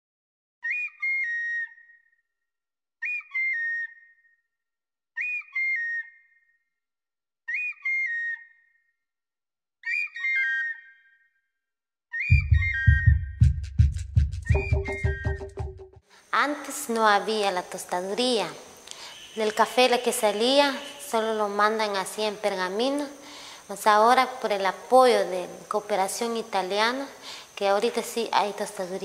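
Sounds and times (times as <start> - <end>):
flute-like melodic phrase: 12.3 - 13.4, 14.4 - 16.0
drum and bass beat: 12.3 - 16.0.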